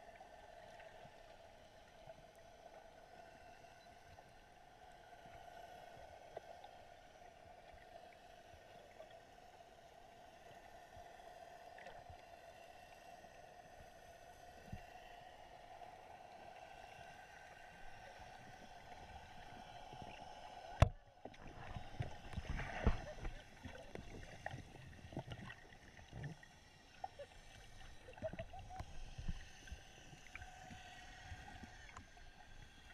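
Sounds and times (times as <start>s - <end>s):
faint underwater hum: 0.0s - 32.9s
soft ticks: 30.2s - 32.6s.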